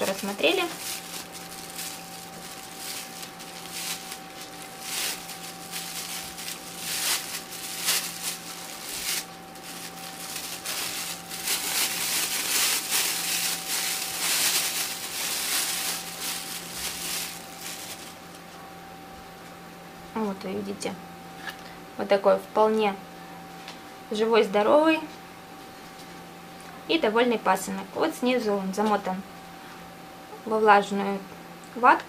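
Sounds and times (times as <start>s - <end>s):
plastic bag crinkling: 0.0s - 18.4s
low electrical hum: 0.0s - 32.0s.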